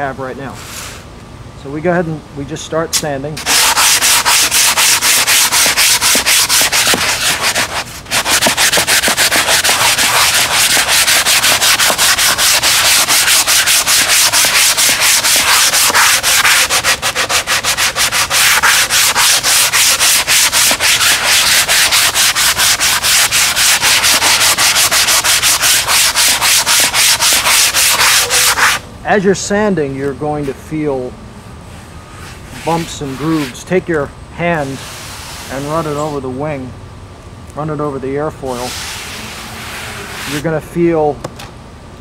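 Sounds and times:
sanding sponge rubbing back and forth: 3.4s - 28.8s, 32.2s - 33.6s, 38.6s - 40.5s.

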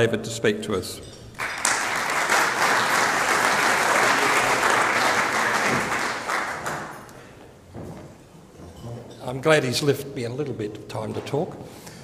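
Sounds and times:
audience applauding: 1.4s - 7.2s.

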